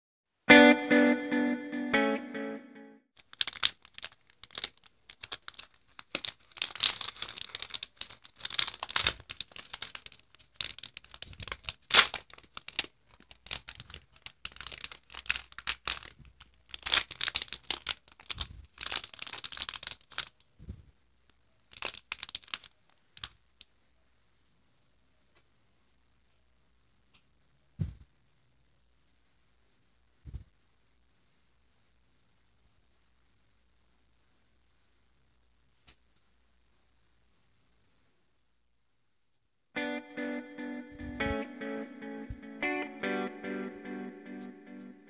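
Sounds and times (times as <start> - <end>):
plastic wrapper crinkling: 3.2 - 20.6, 21.3 - 23.7.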